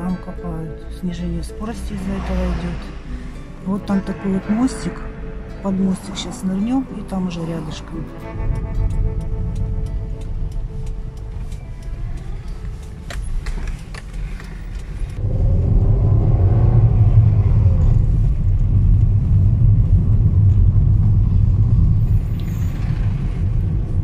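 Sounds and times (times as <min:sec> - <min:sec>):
car engine and road rumble: 0:00.0 - 0:24.0.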